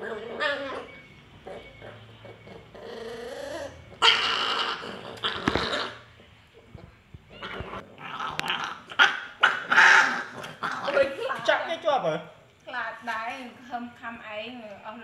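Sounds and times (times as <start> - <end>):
puppies growling and snarling: 0.0 - 11.2.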